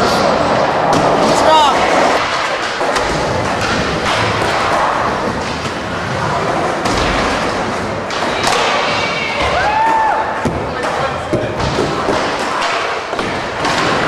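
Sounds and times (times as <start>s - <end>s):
skateboard wheels rolling: 0.0s - 14.0s
skateboards thudding: 0.0s - 14.0s.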